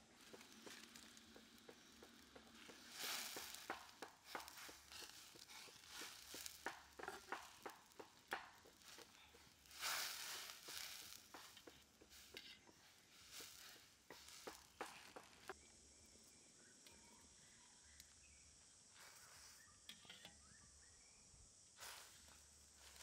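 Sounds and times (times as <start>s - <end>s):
crackles and pops: 0.0s - 15.6s.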